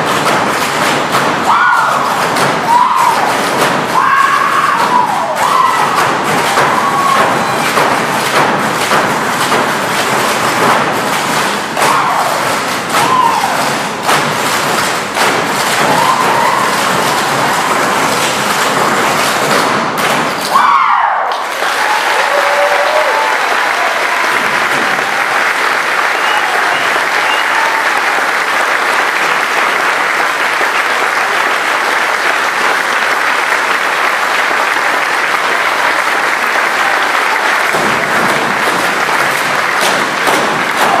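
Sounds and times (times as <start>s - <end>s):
audience applauding: 0.0s - 41.0s.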